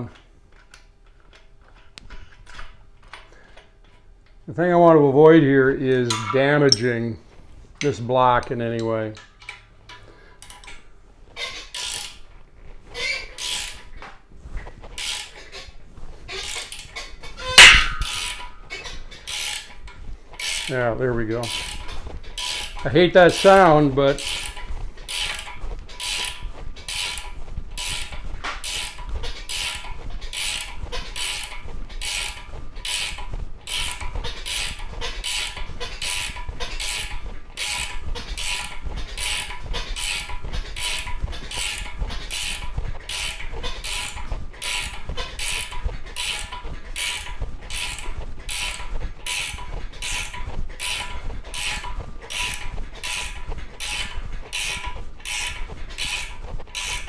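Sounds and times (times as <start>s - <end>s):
ratchet wrench clicking: 11.7s - 12.2s, 13.4s - 13.8s, 19.3s - 19.7s, 20.4s - 20.7s, 22.4s - 23.5s, 24.2s - 57.0s.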